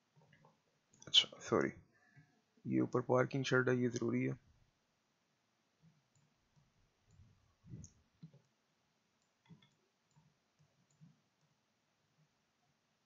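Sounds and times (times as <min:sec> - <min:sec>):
computer mouse clicks: 0:06.1 - 0:06.3, 0:07.1 - 0:08.5, 0:09.2 - 0:11.5.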